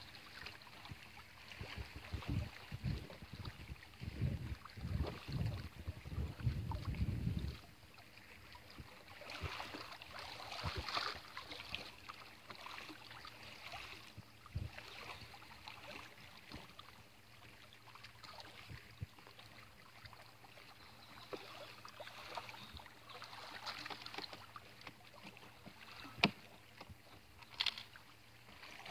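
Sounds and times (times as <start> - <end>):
light clicks and rustles: 23.5 - 28.0.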